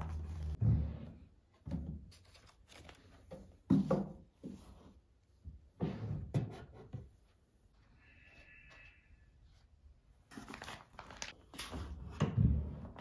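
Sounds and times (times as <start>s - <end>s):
paper rustling: 2.1s - 3.4s, 10.2s - 12.2s
books knocking on wooden shelf: 3.3s - 4.6s.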